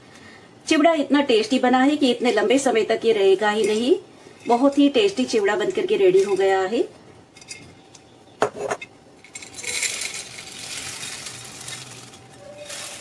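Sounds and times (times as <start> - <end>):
dry snack pouring into glass bowl: 9.3 - 13.0.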